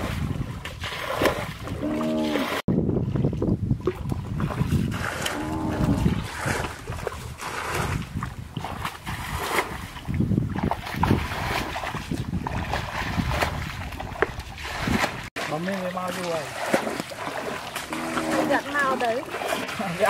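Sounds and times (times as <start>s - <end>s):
muddy water sloshing: 0.0s - 20.0s
hoe dragged through mud: 4.7s - 9.8s, 11.1s - 20.0s.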